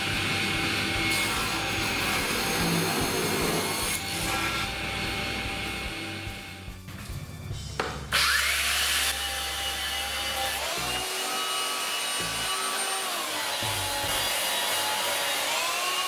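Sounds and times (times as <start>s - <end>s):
belt sander sanding wood: 0.0s - 6.2s
background music: 0.0s - 16.0s.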